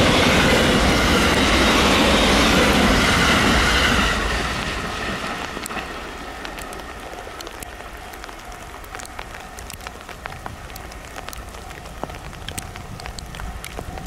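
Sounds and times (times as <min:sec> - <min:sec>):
train receding: 0:00.0 - 0:12.1
light ticks: 0:07.4 - 0:14.0
wind rumble on microphone: 0:07.4 - 0:14.0.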